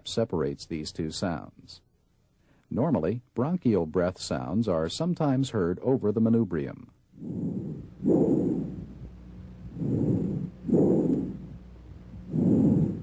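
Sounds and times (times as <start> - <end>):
breathing through a stethoscope: 7.2 - 13.0.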